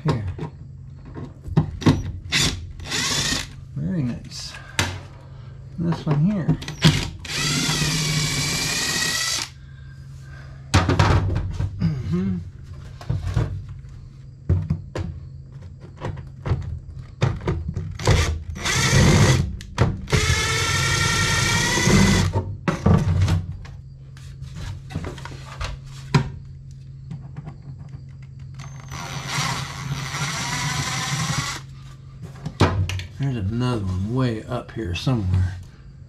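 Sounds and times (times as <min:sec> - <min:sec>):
steady low hum: 0:00.0 - 0:36.0
cordless drill running: 0:02.3 - 0:03.6, 0:06.8 - 0:09.6, 0:18.0 - 0:19.5, 0:20.1 - 0:22.3, 0:28.6 - 0:31.7.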